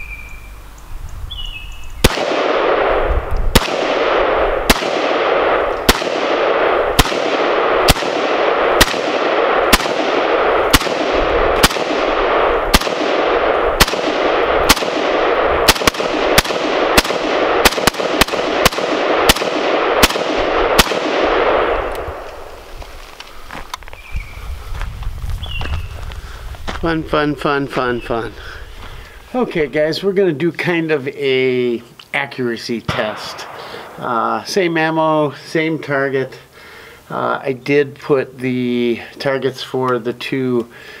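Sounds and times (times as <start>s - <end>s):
rifle shots ringing: 2.0s - 22.6s, 32.9s - 34.2s.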